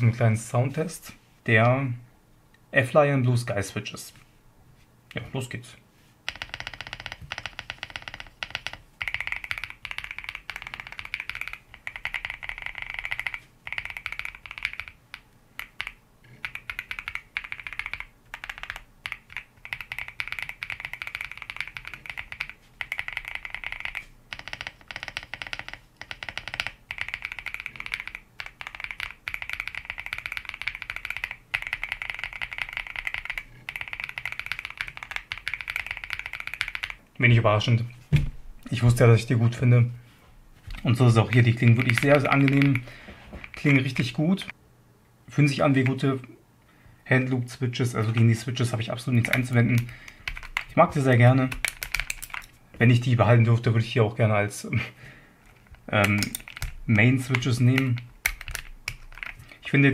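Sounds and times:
mechanical keyboard typing: 6.2s - 37.0s, 40.7s - 44.6s, 48.0s - 52.6s, 55.4s - 59.9s.

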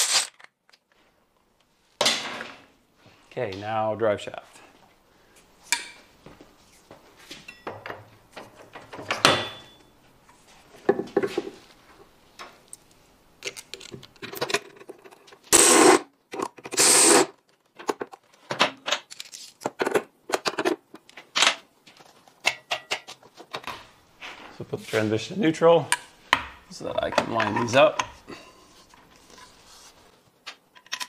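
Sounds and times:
loud rasping bursts: 15.5s - 16.0s, 16.7s - 17.3s.

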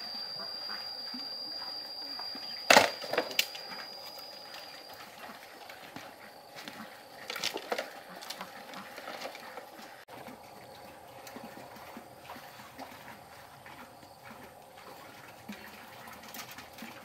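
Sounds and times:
thin high-pitched whine: 0.0s - 10.0s.

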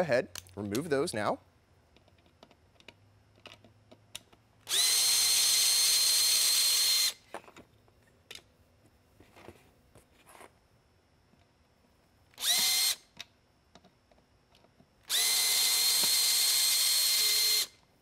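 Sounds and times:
cordless drill running: 4.6s - 7.2s, 12.4s - 13.0s, 15.0s - 17.8s.

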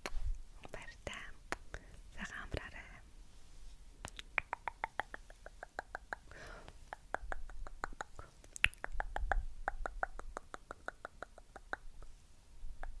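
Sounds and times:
soft mouth clicks: 0.0s - 1.9s, 4.0s - 12.2s, 12.8s - 13.0s.

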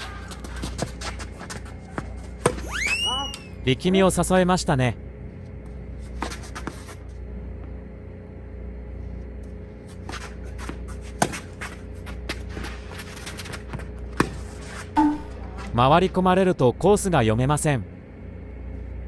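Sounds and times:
shoes scuffing court: 0.0s - 3.5s, 5.6s - 7.2s, 9.5s - 15.8s
steady low hum: 0.0s - 19.0s
rackets striking tennis ball: 15.0s - 15.7s.

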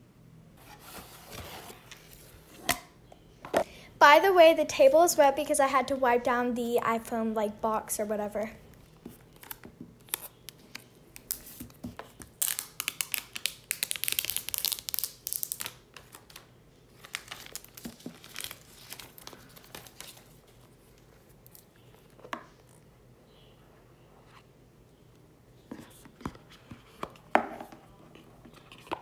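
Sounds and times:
box handling noise: 0.6s - 2.8s
plastic wrap tearing and crinkling: 9.3s - 16.4s, 17.0s - 20.4s.

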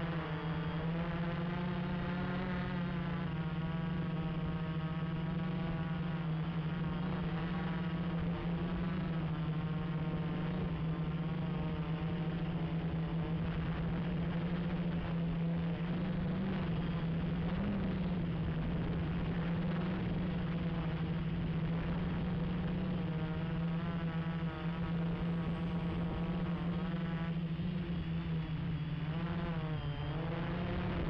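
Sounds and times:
quadcopter motors buzzing: 0.0s - 31.0s.

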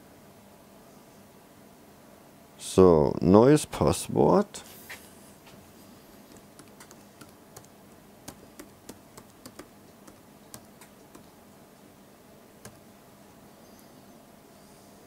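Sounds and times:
typing on keyboard: 6.3s - 11.3s, 12.6s - 12.8s.

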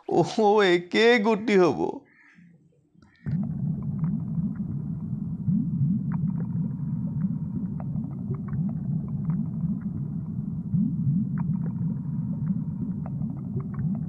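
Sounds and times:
underwater low rumble: 2.4s - 14.0s
bubbling gurgles: 3.1s - 14.0s.

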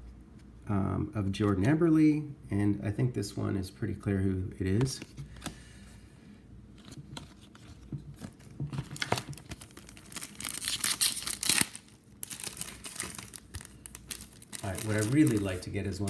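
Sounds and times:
cards tapping and rustling: 4.6s - 5.6s, 6.8s - 10.3s, 12.3s - 16.0s
wrapper tearing and crinkling: 8.8s - 16.0s.

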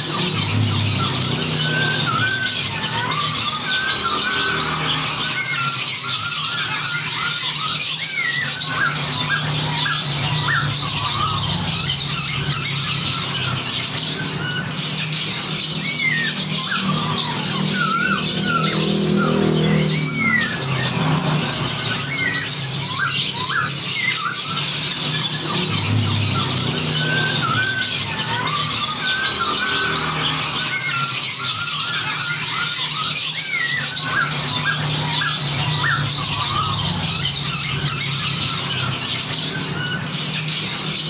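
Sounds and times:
chorus of songbirds chattering: 0.0s - 41.0s.

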